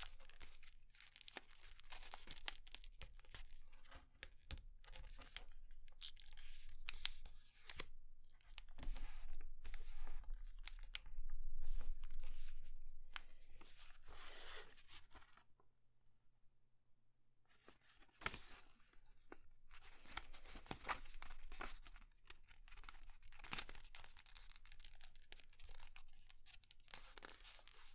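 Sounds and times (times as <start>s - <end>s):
paper rustling and crinkling: 17.5s - 27.9s.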